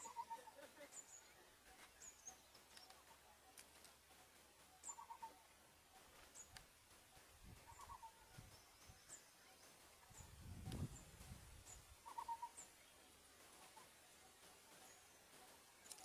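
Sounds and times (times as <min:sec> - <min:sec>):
trilled bird call: 0:00.0 - 0:10.7, 0:11.7 - 0:12.8
faint birdsong chirps: 0:00.0 - 0:16.0.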